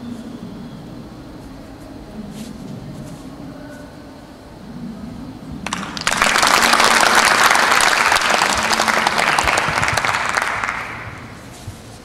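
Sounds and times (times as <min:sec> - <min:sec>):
faint low hall hum: 0:00.0 - 0:12.0
audience applause: 0:05.7 - 0:11.3.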